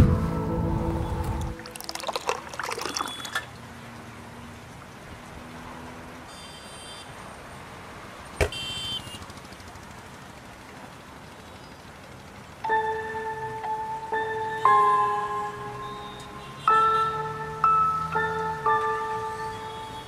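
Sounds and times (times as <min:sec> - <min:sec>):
tea splashing as poured: 0:01.5 - 0:03.6.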